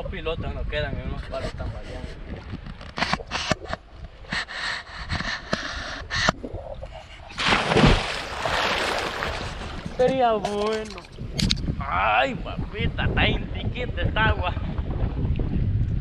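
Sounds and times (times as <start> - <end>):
water lapping at camera: 1.1 - 11.6
swimming water churning: 2.2 - 10.4
person jumping into water splash: 7.3 - 9.9.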